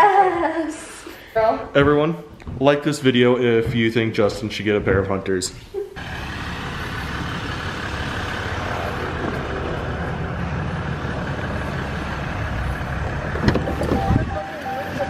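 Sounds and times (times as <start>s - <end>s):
diesel engine idling: 6.0s - 15.0s.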